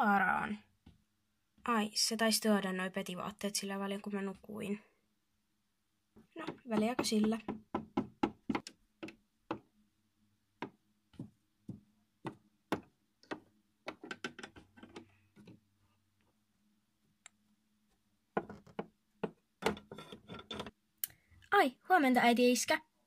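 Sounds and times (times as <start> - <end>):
plastic toy tapping on wood: 6.4 - 9.7, 10.6 - 15.0.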